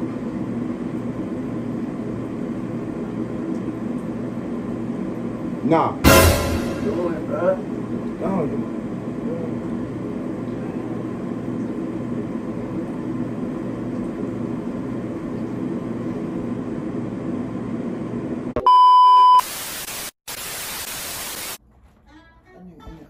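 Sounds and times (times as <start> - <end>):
high beep tone: 18.6 - 19.4.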